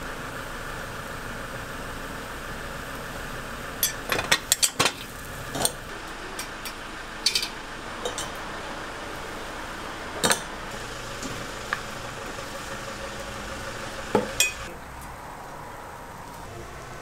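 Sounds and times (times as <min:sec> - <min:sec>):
metal moulds clicking and clanking: 0:06.4 - 0:08.4.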